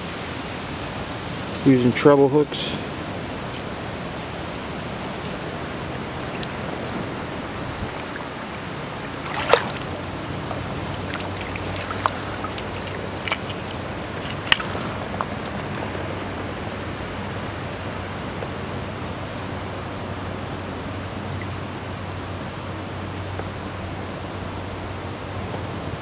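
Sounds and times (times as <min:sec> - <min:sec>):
river water running: 0:00.0 - 0:26.0.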